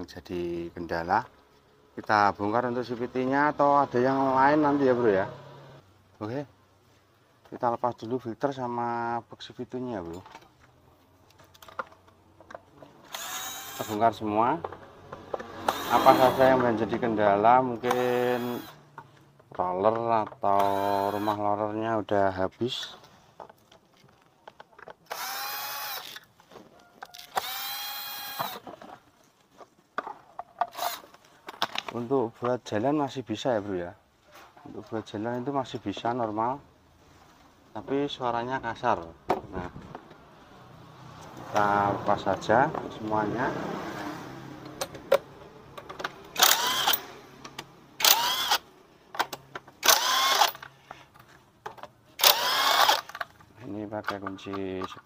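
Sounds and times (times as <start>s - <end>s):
power drill whining: 13.0s - 14.0s, 15.6s - 16.6s, 17.9s - 18.8s, 20.6s - 21.4s, 25.1s - 26.3s, 27.1s - 28.6s, 46.3s - 47.1s, 48.0s - 48.6s, 49.8s - 50.7s, 52.2s - 53.2s.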